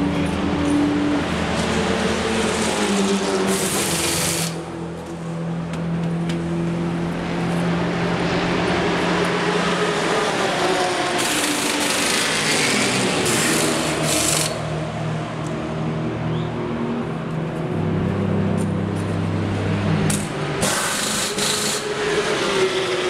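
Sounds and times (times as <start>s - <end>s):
engine drone: 0.0s - 23.0s
pneumatic wheel guns: 3.5s - 4.6s, 11.2s - 14.6s, 20.1s - 22.0s
bursts of air hissing: 20.6s - 21.9s.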